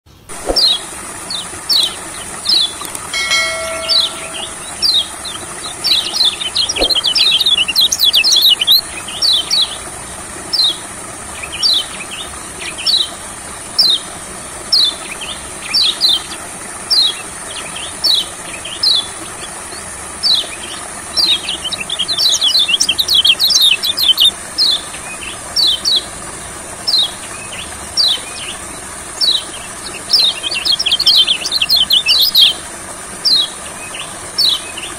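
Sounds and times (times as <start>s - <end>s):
steady high hiss: 0.1s - 10.3s
bird chirping and chattering: 1.4s - 9.8s, 21.2s - 26.0s, 29.2s - 32.6s.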